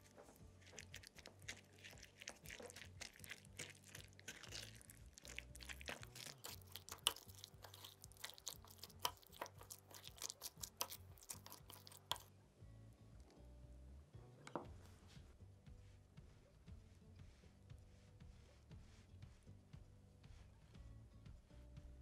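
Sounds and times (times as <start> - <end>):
wet squishing of mixture: 0.0 - 12.3.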